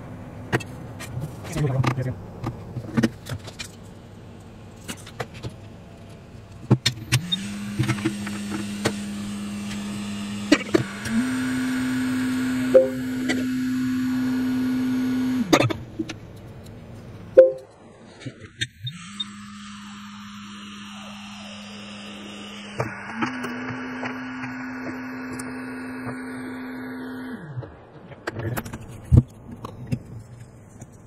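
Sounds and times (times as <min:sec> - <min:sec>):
small electric motor humming: 0:07.2 - 0:15.5, 0:18.9 - 0:27.4.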